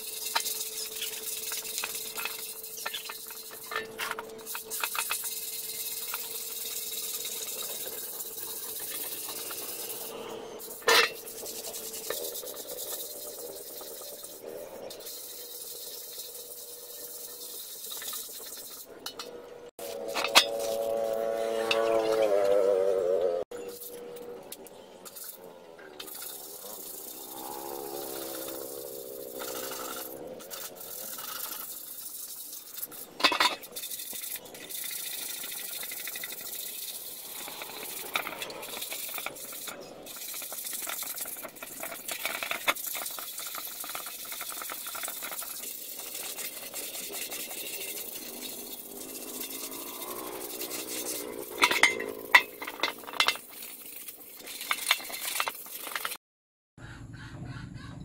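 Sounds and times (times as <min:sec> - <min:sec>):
scraping and rubbing: 0:00.0 - 0:22.9, 0:23.5 - 0:56.2
knocks and clinks: 0:48.3 - 0:53.6.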